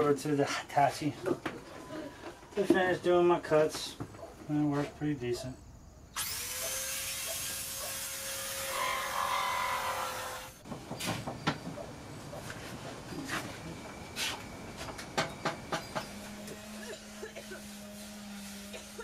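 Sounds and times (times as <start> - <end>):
rotary tool whining: 6.2 - 11.9, 13.7 - 19.0
sharp knocks and clicks: 10.6 - 11.9.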